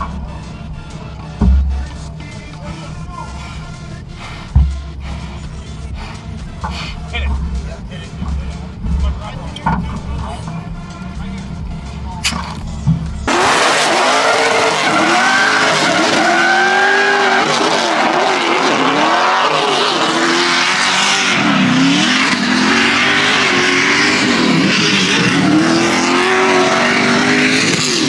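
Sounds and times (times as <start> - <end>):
car engine revving: 0.0 - 28.0
tyres squealing and skidding: 13.3 - 28.0.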